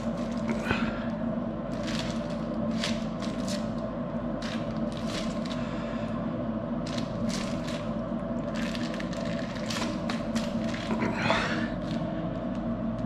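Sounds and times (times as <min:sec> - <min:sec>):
plastic casing rustling and scraping: 0:00.0 - 0:00.6, 0:01.7 - 0:03.8, 0:04.4 - 0:05.6, 0:06.8 - 0:11.1
steady machine hum: 0:00.0 - 0:13.0.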